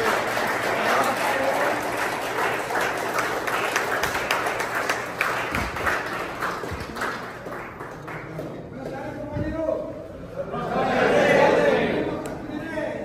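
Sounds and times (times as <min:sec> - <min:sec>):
group of people applauding: 0:00.0 - 0:09.2.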